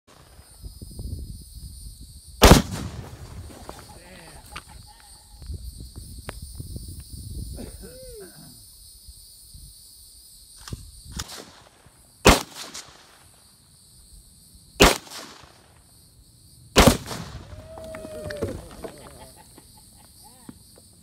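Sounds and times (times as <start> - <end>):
rifle shots: 2.4 - 3.6, 11.2 - 13.1, 14.8 - 15.6, 16.8 - 17.5
explosive target detonating: 2.4 - 3.7, 16.8 - 17.6.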